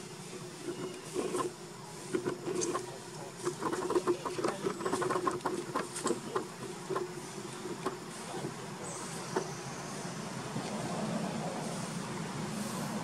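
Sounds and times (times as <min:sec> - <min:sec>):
crackling and rustling: 0:00.5 - 0:09.6.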